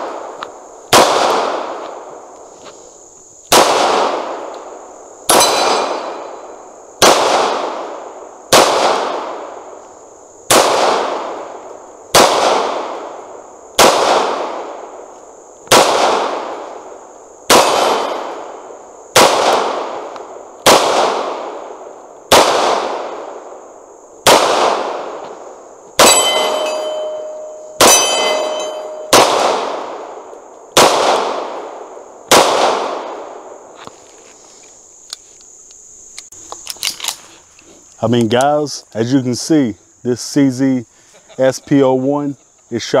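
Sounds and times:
pistol shots with echo: 0.0s - 2.1s, 3.5s - 4.5s, 5.3s - 6.4s, 7.0s - 9.6s, 10.5s - 13.2s, 13.8s - 14.9s, 15.7s - 16.7s, 17.5s - 18.5s, 19.1s - 23.4s, 24.2s - 25.2s, 26.0s - 33.5s
metallic ring: 26.0s - 29.2s.

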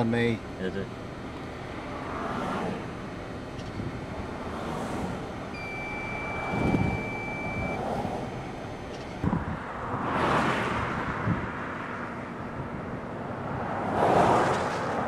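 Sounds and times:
steady high-pitched tone: 5.3s - 9.2s
wind rushing over microphone: 6.4s - 8.4s, 9.1s - 15.0s.

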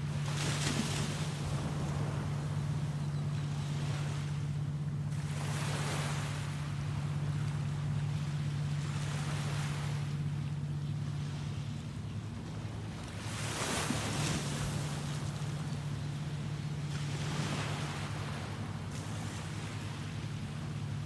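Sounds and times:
waves washing onto beach: 0.0s - 2.8s, 12.6s - 21.0s
steady low hum: 0.0s - 21.0s.

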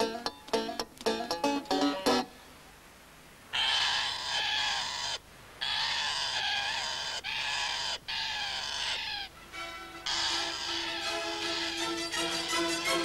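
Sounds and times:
macaws squawking: 3.5s - 13.0s.

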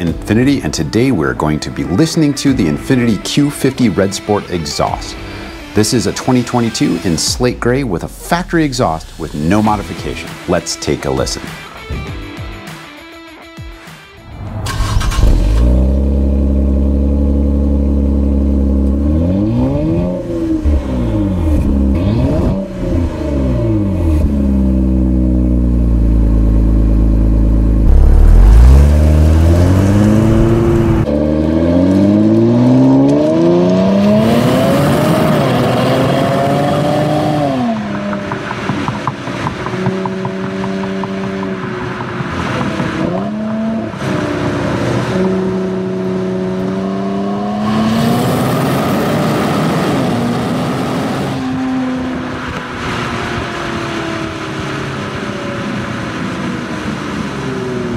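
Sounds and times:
car exhaust revving: 14.4s - 57.9s.

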